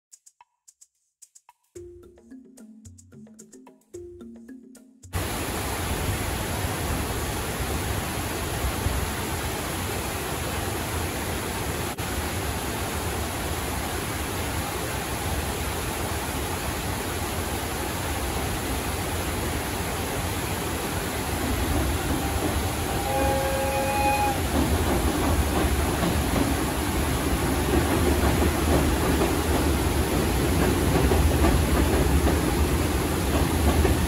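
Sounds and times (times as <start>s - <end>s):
river water rushing over rocks: 5.2s - 34.0s
train rumbling on bridge: 18.6s - 34.0s.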